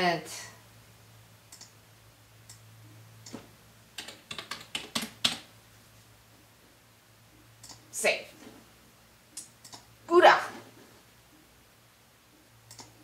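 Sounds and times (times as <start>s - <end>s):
keyboard typing: 4.0s - 5.5s, 7.6s - 7.8s, 9.4s - 9.9s, 12.6s - 13.0s.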